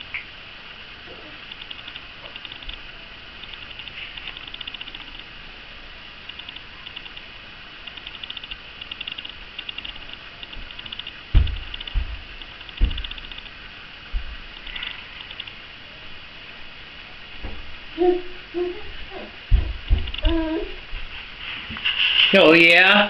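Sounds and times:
dull low thumps: 11.3s - 13.3s, 14.1s - 14.5s, 17.4s - 21.1s.

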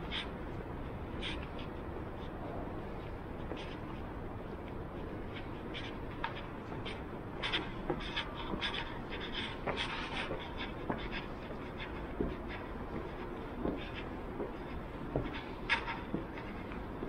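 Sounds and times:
low background hum: 0.0s - 17.0s
footsteps on marble stairs: 5.8s - 17.0s.

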